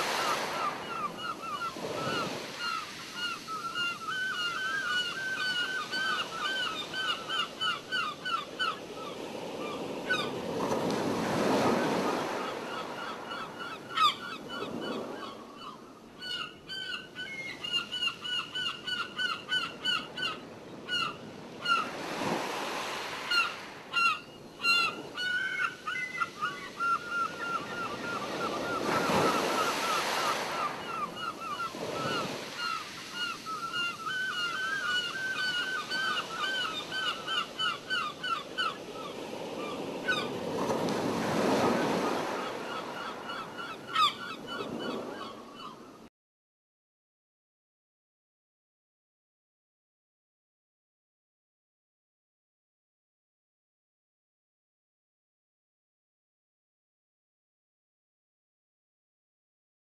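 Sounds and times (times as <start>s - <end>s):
waves washing on a beach: 0.0s - 15.2s, 20.4s - 23.9s, 25.0s - 45.2s.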